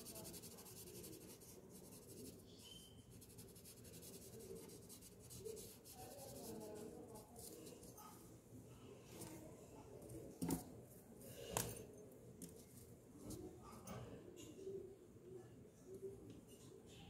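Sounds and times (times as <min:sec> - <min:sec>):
pencil scratching on paper: 0:00.0 - 0:08.0.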